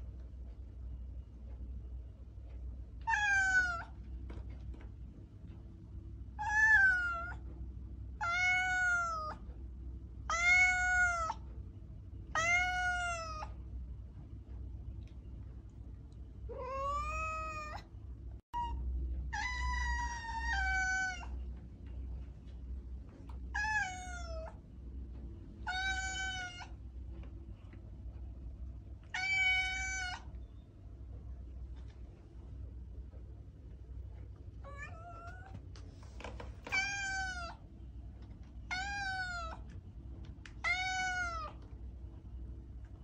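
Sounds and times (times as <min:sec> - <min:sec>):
faint low hum: 0:00.0 - 0:43.0
cat meowing: 0:03.0 - 0:04.0, 0:06.4 - 0:07.4, 0:08.2 - 0:09.4, 0:10.3 - 0:11.4, 0:12.3 - 0:13.6, 0:16.5 - 0:17.9, 0:18.6 - 0:21.4, 0:23.5 - 0:24.6, 0:25.6 - 0:26.8, 0:29.1 - 0:30.4, 0:34.6 - 0:35.6, 0:36.7 - 0:37.6, 0:38.7 - 0:39.6, 0:40.6 - 0:41.6.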